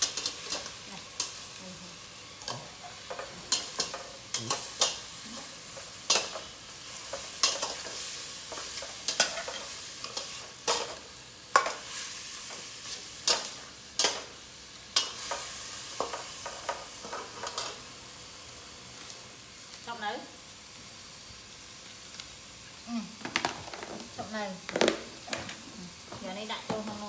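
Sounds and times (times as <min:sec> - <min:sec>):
food sizzling: 0:00.0 - 0:27.0.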